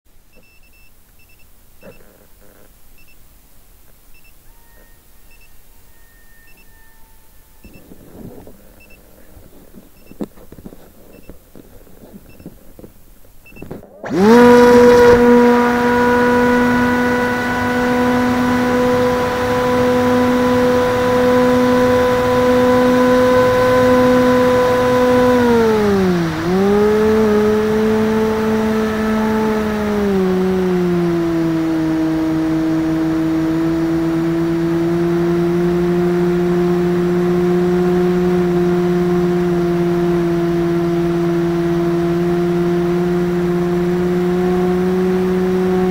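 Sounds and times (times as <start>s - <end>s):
electric motor and propeller hum: 0.2s - 45.9s
short beeps: 0.3s - 2.0s, 3.0s - 3.2s, 4.1s - 8.0s.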